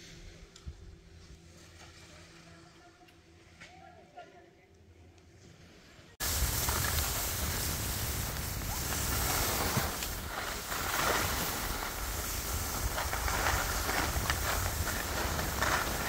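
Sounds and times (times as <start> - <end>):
skis scraping packed snow: 5.5 - 16.0
wind buffeting microphone: 6.2 - 16.0.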